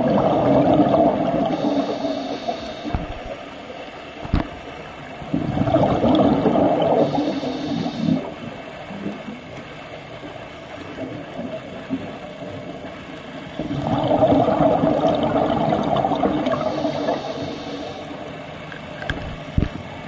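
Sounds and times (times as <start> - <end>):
scuba regulator exhaled bubbles: 0.0 - 3.4, 5.3 - 8.4, 13.6 - 18.0
muffled underwater rush: 0.0 - 18.6.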